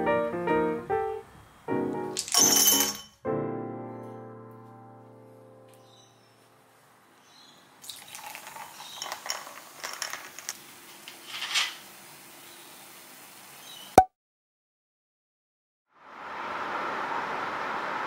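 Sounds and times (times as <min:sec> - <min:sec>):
drink fizzing: 0:07.8 - 0:11.1
ice crackling in a glass: 0:07.8 - 0:11.8.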